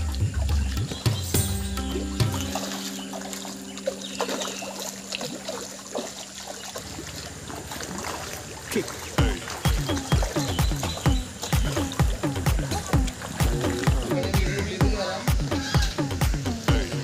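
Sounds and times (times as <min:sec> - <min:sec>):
fish splashing at water surface: 0:00.0 - 0:17.0.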